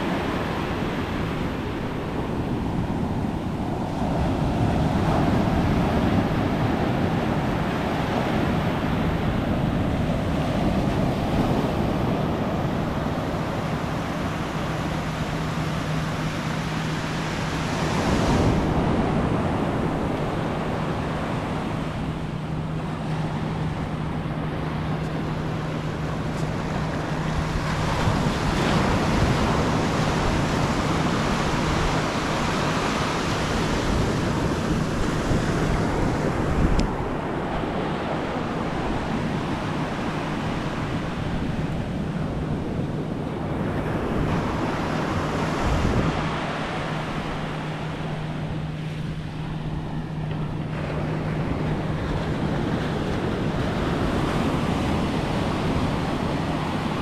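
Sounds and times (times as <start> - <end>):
ocean surf on beach: 0.0 - 57.0.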